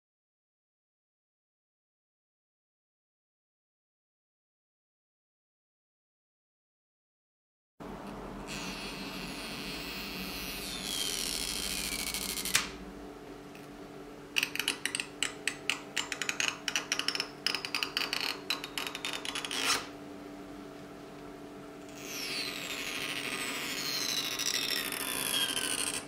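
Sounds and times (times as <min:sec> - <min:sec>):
adhesive strip pulled with squeaks: 0:08.5 - 0:12.7, 0:18.0 - 0:19.9, 0:21.9 - 0:26.0.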